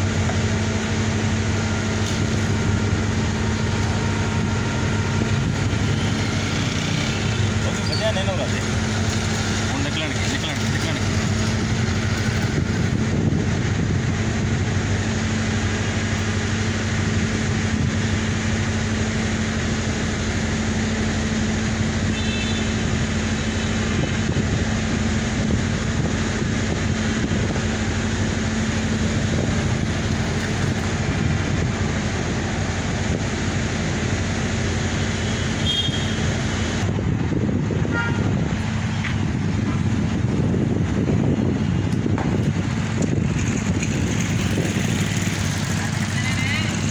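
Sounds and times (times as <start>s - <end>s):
traffic noise: 0.0s - 46.9s
short high horn toots: 22.1s - 22.8s, 35.2s - 36.3s, 37.9s - 38.4s.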